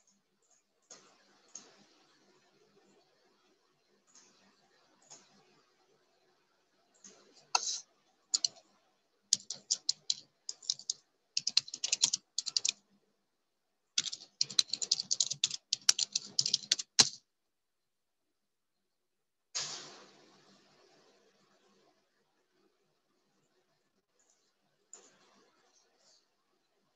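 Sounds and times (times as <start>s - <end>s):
computer keyboard typing: 8.3s - 8.6s, 9.3s - 12.8s, 14.0s - 17.2s.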